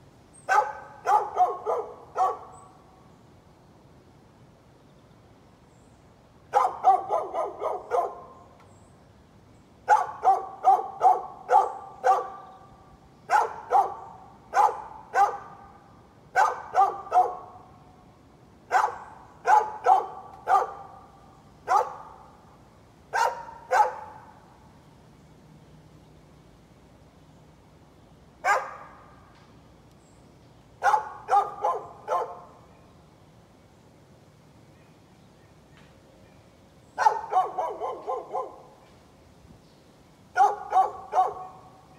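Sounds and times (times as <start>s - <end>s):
dog barking: 0.5s - 2.6s, 6.5s - 8.4s, 9.9s - 12.5s, 13.3s - 17.6s, 18.7s - 21.0s, 21.7s - 22.2s, 23.1s - 24.3s, 28.4s - 29.0s, 30.8s - 32.5s, 37.0s - 38.7s, 40.4s - 41.7s.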